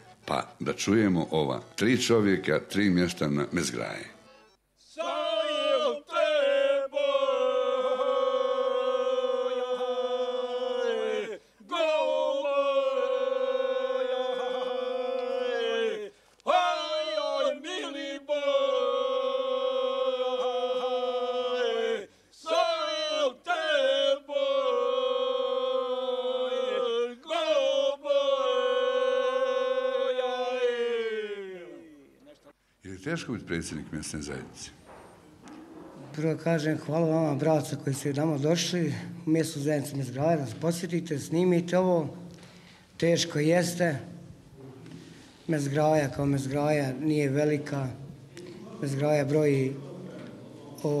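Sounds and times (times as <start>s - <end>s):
men singing unaccompanied: 4.9s - 32.0s, 47.6s - 51.0s.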